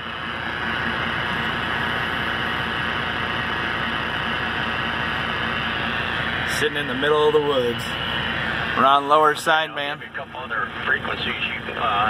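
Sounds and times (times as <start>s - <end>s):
radio static hiss: 6.5s - 12.0s.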